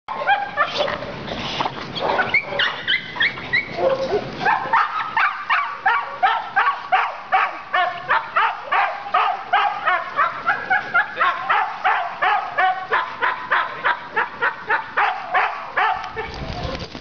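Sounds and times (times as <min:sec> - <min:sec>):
dog yelping: 0:02.0 - 0:16.4
dog barking: 0:03.8 - 0:16.3.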